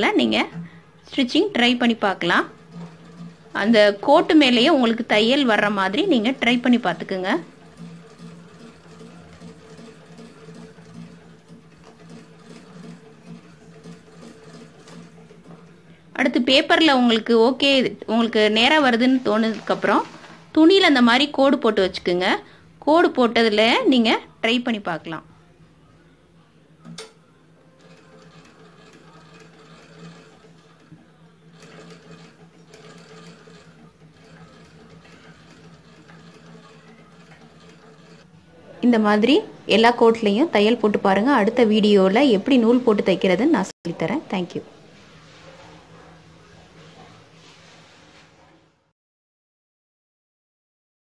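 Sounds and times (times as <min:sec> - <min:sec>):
treadle sewing machine clatter: 0:00.0 - 0:21.2, 0:26.9 - 0:38.3.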